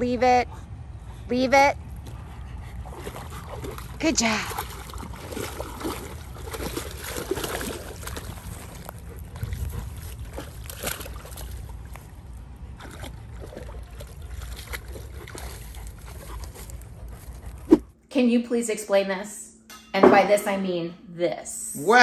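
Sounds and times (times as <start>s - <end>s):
dog sloshing through water: 1.8s - 17.9s.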